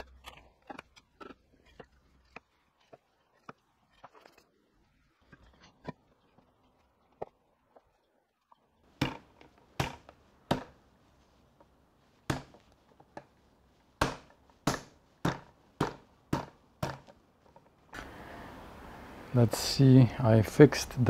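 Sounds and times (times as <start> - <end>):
sharp wooden knocks: 9.0 - 10.8, 14.0 - 17.7.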